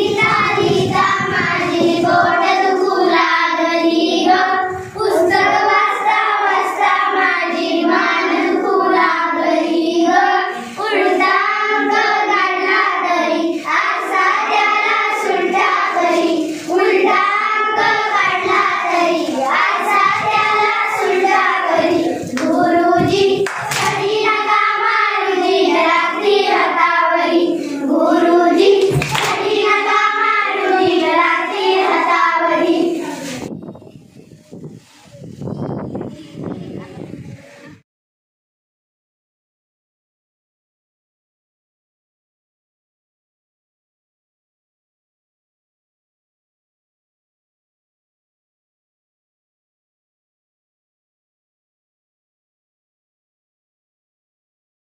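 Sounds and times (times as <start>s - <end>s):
children singing in chorus: 0.0s - 33.6s.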